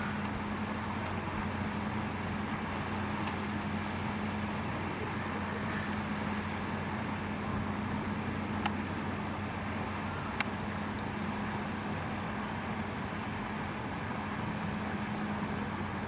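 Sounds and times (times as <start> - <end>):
low even hum: 0.0 - 16.0.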